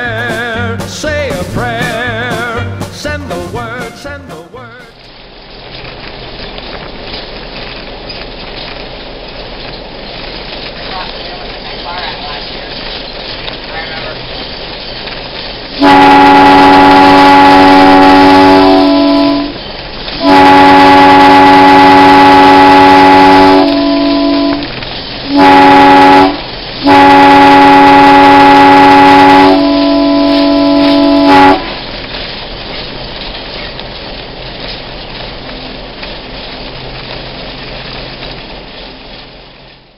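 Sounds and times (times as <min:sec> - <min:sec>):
train rolling rumble: 0:00.0 - 0:39.9
locomotive air horn blasts: 0:15.8 - 0:19.6, 0:20.2 - 0:24.7, 0:25.3 - 0:31.8.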